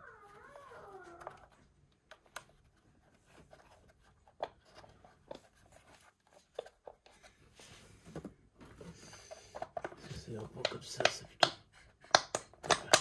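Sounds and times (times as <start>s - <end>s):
plastic cover clicks and taps: 9.6s - 13.0s.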